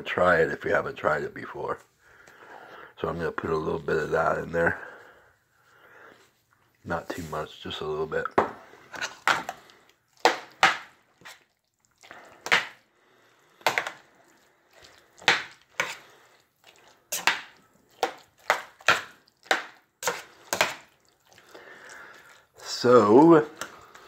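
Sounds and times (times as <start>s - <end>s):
spoon scraping a metal pot: 15.7s - 16.1s, 20.0s - 20.9s.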